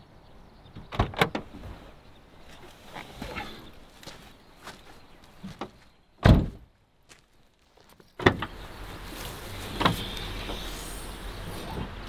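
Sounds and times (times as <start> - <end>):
heavy thump: 5.6 - 6.7.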